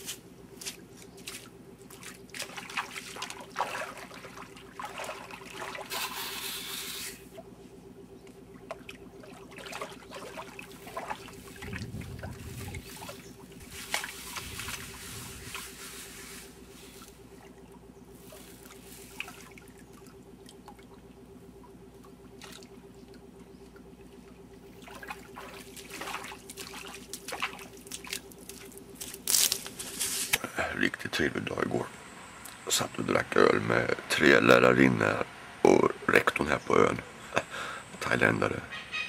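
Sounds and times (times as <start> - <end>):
steps wading through water: 0.0 - 30.4
water sloshing in a pan: 1.9 - 6.2, 8.6 - 15.7, 16.5 - 28.9.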